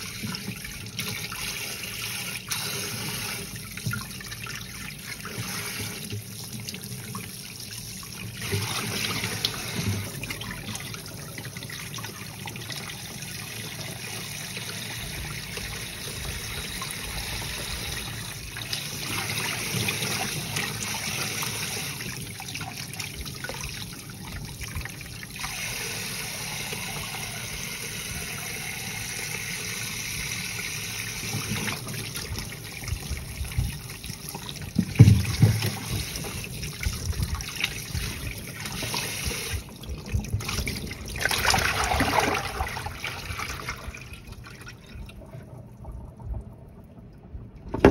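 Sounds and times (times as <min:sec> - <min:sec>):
water splashing: 0:40.3 - 0:45.2.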